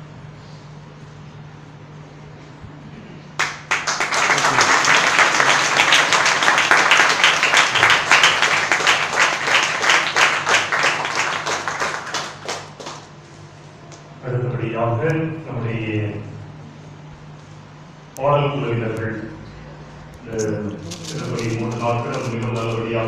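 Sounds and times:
congregation applauding: 0:03.4 - 0:13.2, 0:20.8 - 0:22.8.

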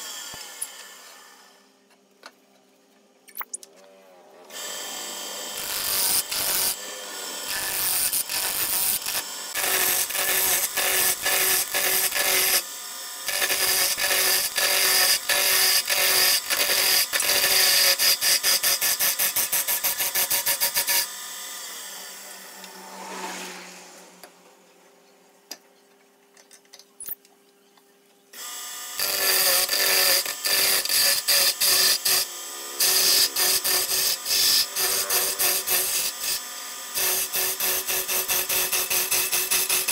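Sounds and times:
wood lathe humming: 0:04.5 - 0:23.0, 0:28.4 - 0:39.9
chisel scraping spinning wood: 0:29.0 - 0:36.4.

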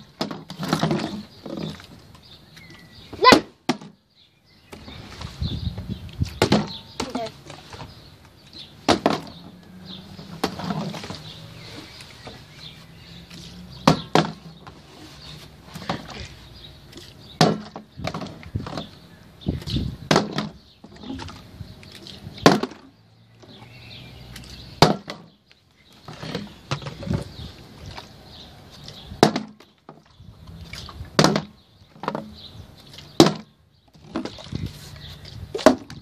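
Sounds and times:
handling and rustling: 0:04.6 - 0:19.0.

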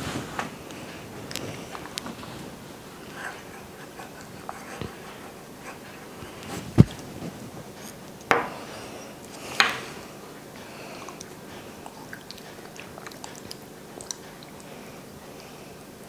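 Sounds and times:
wet eating sounds: 0:08.8 - 0:16.0.

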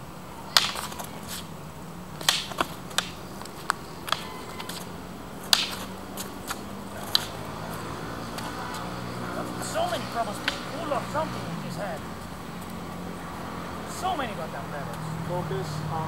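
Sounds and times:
wooden swords clacking: 0:00.5 - 0:01.5, 0:02.2 - 0:11.0.

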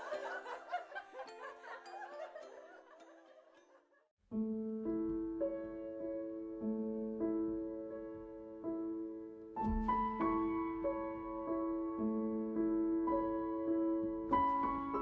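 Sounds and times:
gentle piano tune: 0:00.0 - 0:03.4, 0:04.3 - 0:15.0
chiming mallet percussion tune: 0:01.3 - 0:03.7.

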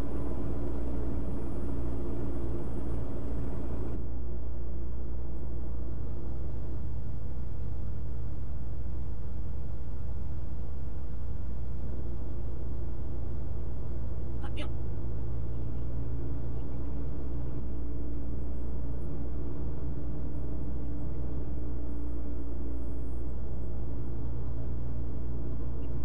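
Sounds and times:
truck road and engine rumble: 0:00.0 - 0:26.0.

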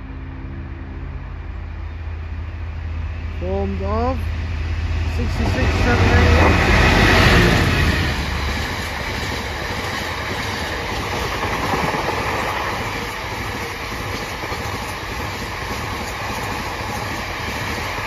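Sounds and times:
freight train wagons rolling: 0:05.2 - 0:18.0
wheels clickety-clack: 0:05.9 - 0:18.0.

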